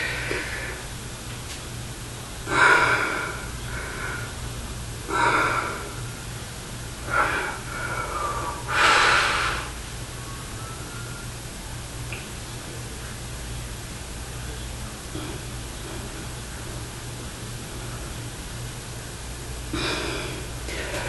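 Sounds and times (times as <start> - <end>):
steady low hum: 0.0 - 21.0
man breathing forcefully: 2.5 - 4.4, 5.0 - 6.0, 7.0 - 9.8.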